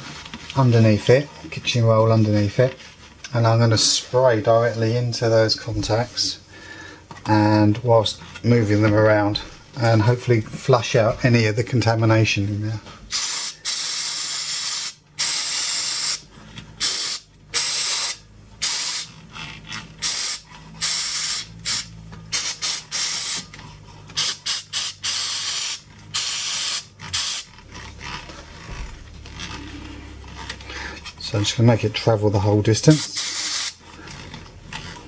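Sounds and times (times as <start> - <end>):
aerosol spray bursts: 13.1 - 16.2, 16.8 - 19.1, 24.2 - 27.5, 32.9 - 33.8.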